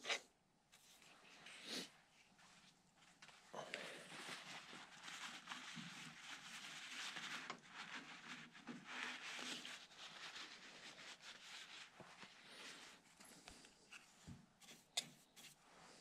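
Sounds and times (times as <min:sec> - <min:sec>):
paper towel rubbing: 0:02.3 - 0:13.1.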